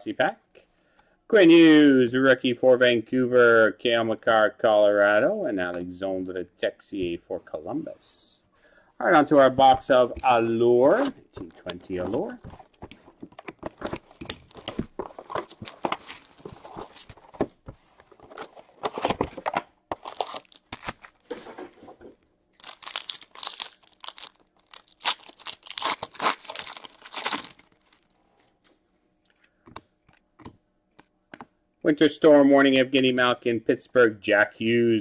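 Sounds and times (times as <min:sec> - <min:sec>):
plastic wrap and cardboard tearing: 0:13.5 - 0:17.2, 0:18.2 - 0:21.5, 0:22.6 - 0:28.2
card pack wrapper ripping: 0:14.1 - 0:17.2, 0:19.9 - 0:21.3, 0:22.6 - 0:28.2.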